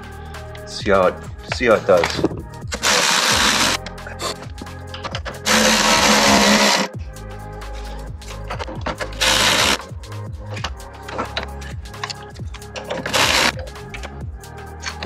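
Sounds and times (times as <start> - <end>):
power ratchet tightening bolt: 2.7 - 3.8, 5.0 - 6.9, 9.0 - 9.8, 12.8 - 14.2.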